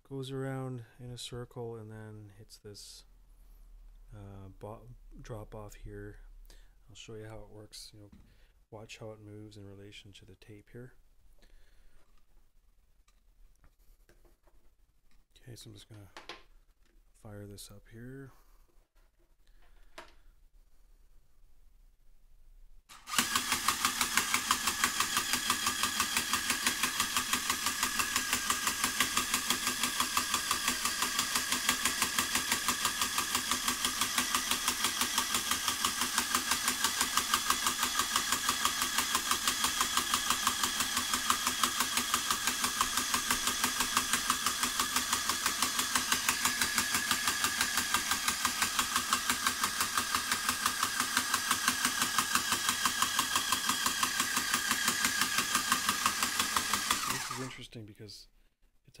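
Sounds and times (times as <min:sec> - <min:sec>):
drill motor running: 0:22.9 - 0:57.6.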